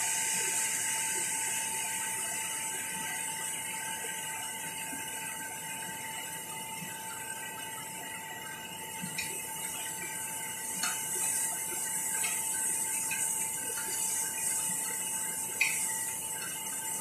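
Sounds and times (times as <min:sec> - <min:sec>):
pot hissing on gas stove: 0:00.0 - 0:04.2, 0:09.1 - 0:17.0
faint steady whine: 0:00.0 - 0:17.0.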